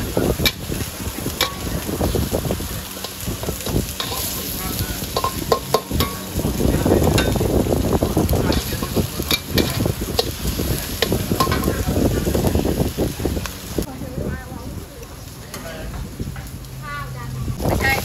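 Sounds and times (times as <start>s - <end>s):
food sizzling in a wok: 0.0s - 18.0s
metal spatula scraping a wok: 0.4s - 6.4s, 8.4s - 11.7s.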